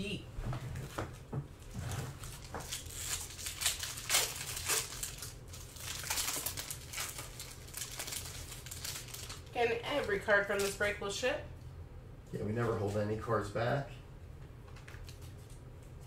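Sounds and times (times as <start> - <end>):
foil wrapper crinkling: 2.2 - 10.8.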